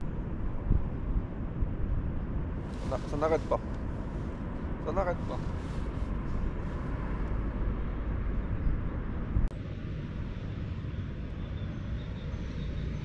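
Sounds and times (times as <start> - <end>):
low rumbling outdoor noise: 0.0 - 13.0.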